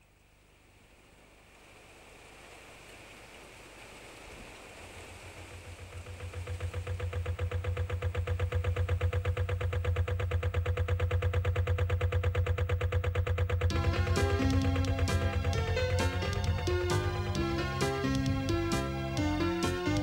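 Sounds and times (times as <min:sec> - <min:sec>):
diesel boat engine chugging: 0:05.2 - 0:20.0.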